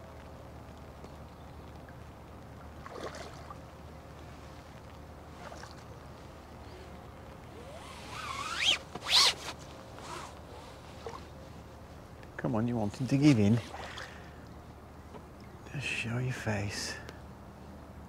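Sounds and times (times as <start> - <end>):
fish thrashing water splashing: 2.8 - 3.6.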